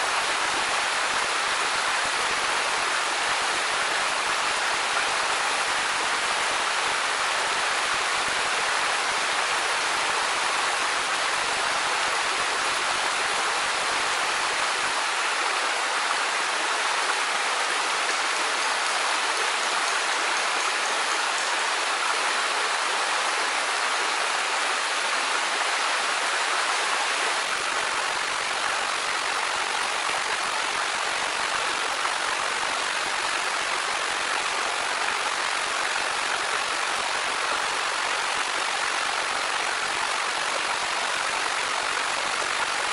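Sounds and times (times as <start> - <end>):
waterfall rushing: 0.0 - 42.9.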